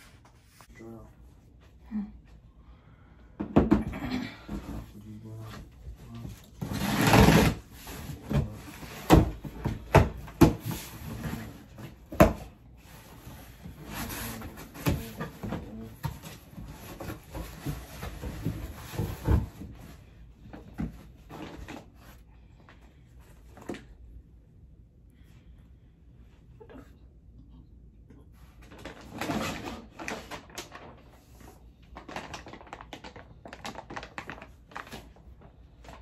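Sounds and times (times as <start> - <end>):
cardboard scraping and rustling: 4.6 - 22.2.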